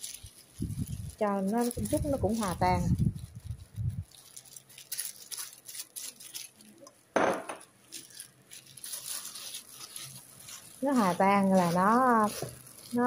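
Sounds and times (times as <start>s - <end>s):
plastic glove rustling: 0.0s - 13.0s
sugar pouring into bowl: 7.9s - 13.0s.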